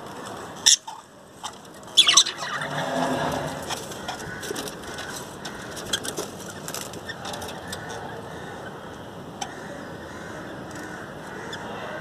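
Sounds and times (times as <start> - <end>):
budgerigars clicking and chirping: 0.6 - 2.7.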